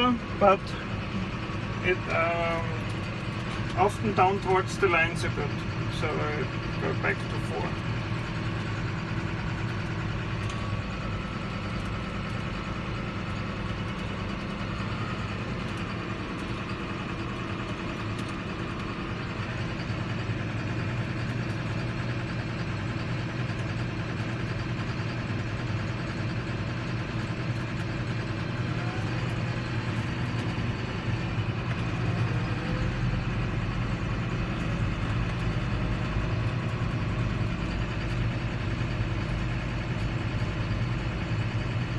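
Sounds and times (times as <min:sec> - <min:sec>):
tractor diesel engine humming: 0:00.0 - 0:41.9.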